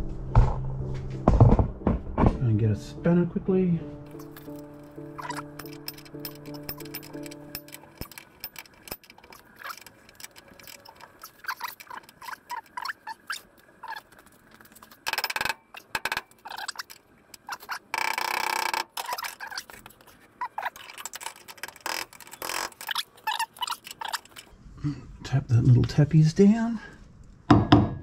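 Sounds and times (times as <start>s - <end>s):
spanner clinking against metal: 4.1s - 12.9s
rapid ratchet clicking: 4.2s - 12.8s.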